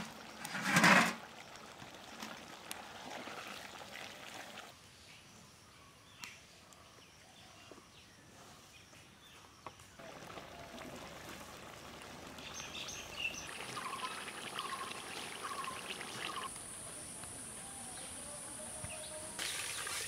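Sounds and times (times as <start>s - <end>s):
curry bubbling and simmering: 0.0s - 4.8s, 10.0s - 16.6s
birds chirping: 11.8s - 19.8s.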